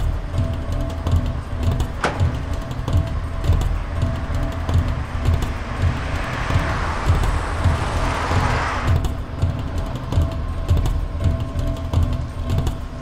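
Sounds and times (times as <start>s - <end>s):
pulsing background music beat: 0.0s - 13.0s
car passing: 1.1s - 11.2s.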